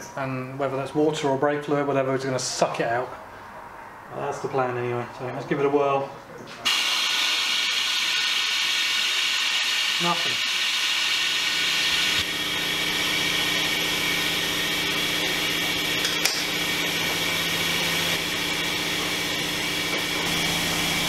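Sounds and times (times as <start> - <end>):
vacuum brake bleeder hissing: 6.7 - 16.0.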